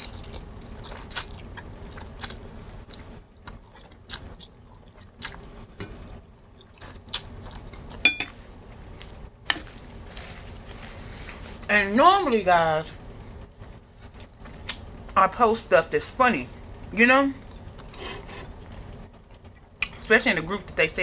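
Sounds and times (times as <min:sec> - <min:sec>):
fork clinking on bowl: 0:07.7 - 0:08.4.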